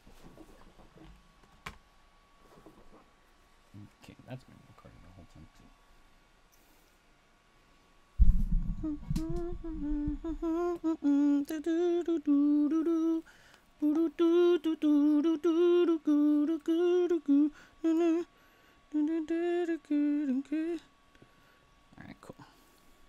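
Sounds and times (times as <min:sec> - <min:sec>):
man humming a tune: 0:08.7 - 0:13.2, 0:13.8 - 0:18.3, 0:18.9 - 0:20.9.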